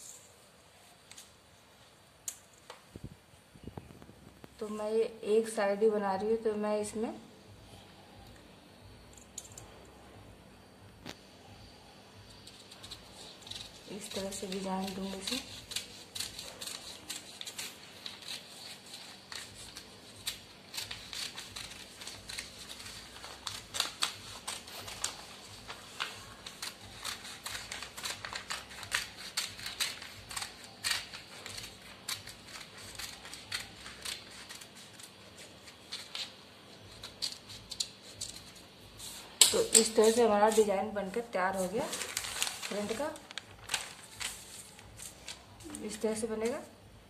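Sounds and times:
scissors snipping paper: 0:12.4 - 0:38.6.

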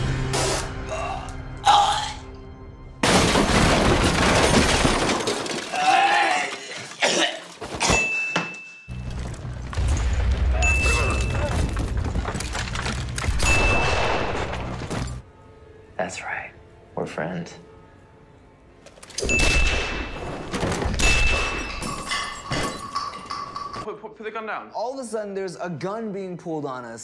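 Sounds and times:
dramatic soundtrack music: 0:00.0 - 0:03.0
loud crashes and thuds: 0:03.0 - 0:05.7.

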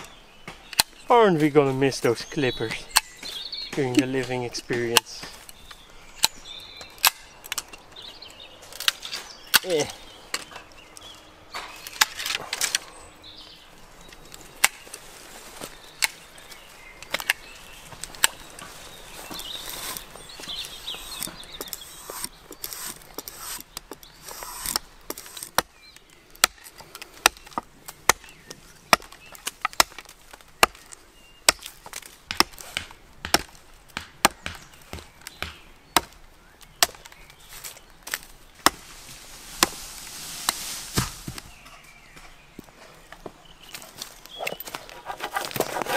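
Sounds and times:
hand tool chopping wood: 0:02.8 - 0:05.5, 0:26.4 - 0:30.9, 0:31.5 - 0:39.8, 0:40.4 - 0:41.5, 0:44.5 - 0:45.9
sharp snips on wood: 0:31.5 - 0:36.2.

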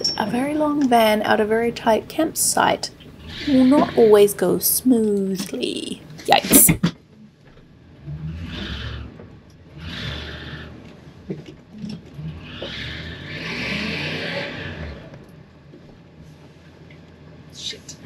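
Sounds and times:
van engine revving: 0:07.6 - 0:15.5.

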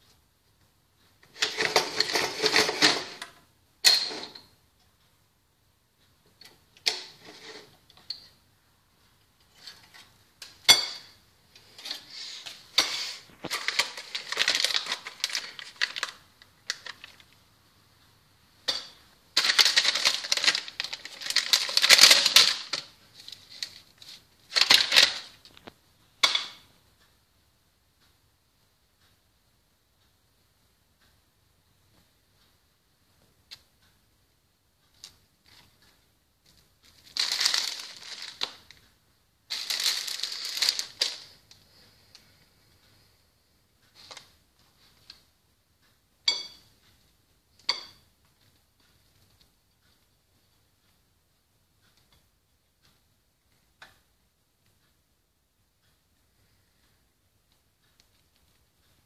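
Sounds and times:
objects clattering on a table: 0:01.2 - 0:04.5.

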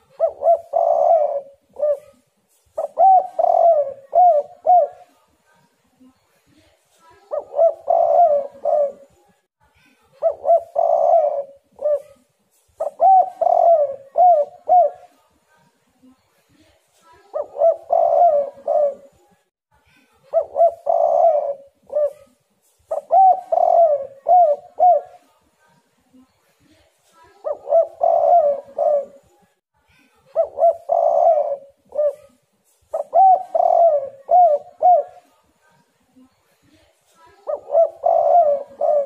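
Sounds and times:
dove cooing: 0:00.0 - 0:02.2, 0:02.8 - 0:05.1, 0:07.3 - 0:09.2, 0:10.2 - 0:12.2, 0:12.8 - 0:15.2, 0:17.3 - 0:19.2, 0:20.3 - 0:25.3, 0:27.4 - 0:29.4, 0:30.4 - 0:35.3, 0:37.4 - 0:39.0.

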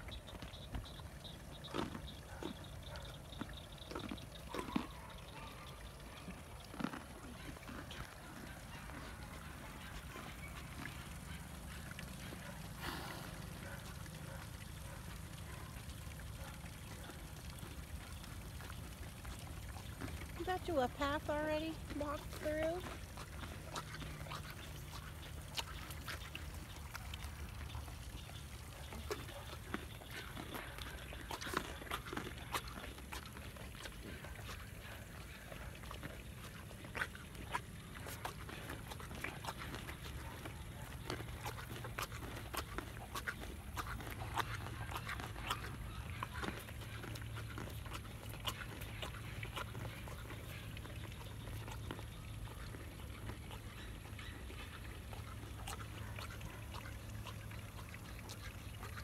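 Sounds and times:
horse chewing carrot: 0:00.0 - 0:59.0
wet mouth clicks: 0:35.8 - 0:53.6.

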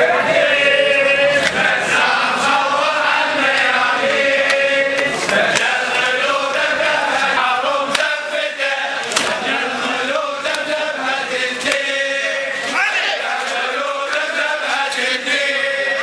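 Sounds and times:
men chanting together: 0:00.0 - 0:16.0.

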